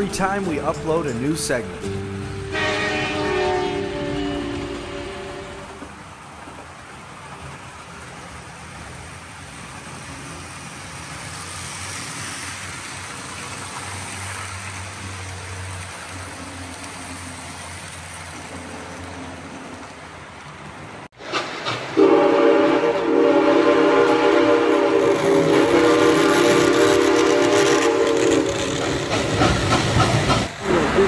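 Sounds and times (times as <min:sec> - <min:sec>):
model train rumbling on track: 0:00.0 - 0:31.0.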